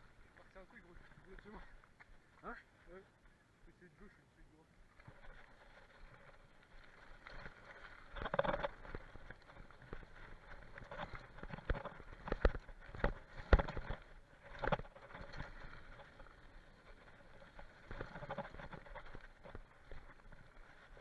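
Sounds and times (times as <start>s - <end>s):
bike tyres on dirt: 4.9s - 21.0s
bike knocking and rattling: 5.0s - 21.0s.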